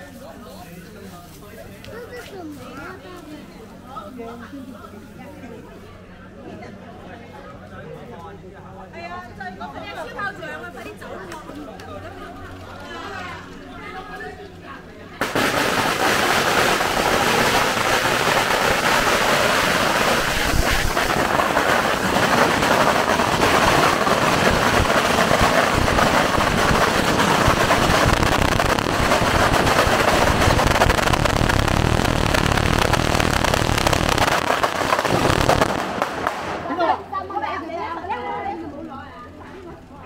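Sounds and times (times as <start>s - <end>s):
firecrackers crackling: 15.2s - 37.1s.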